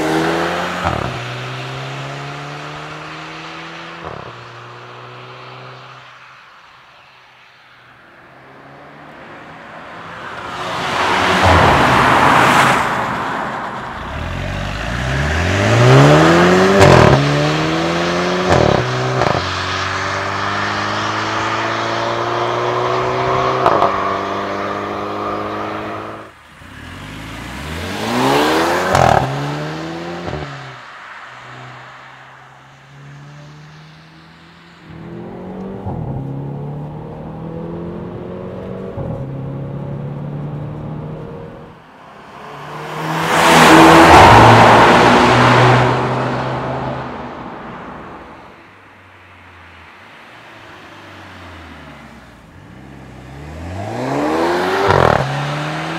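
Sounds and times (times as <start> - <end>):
car engine accelerating hard: 0.0 - 5.8, 13.9 - 30.8, 42.5 - 47.7, 52.6 - 55.9.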